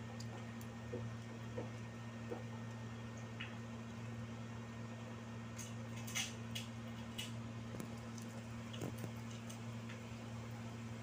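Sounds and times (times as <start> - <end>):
low electrical hum: 0.0 - 11.0
soft clicks of eating: 0.1 - 3.6, 5.6 - 10.1.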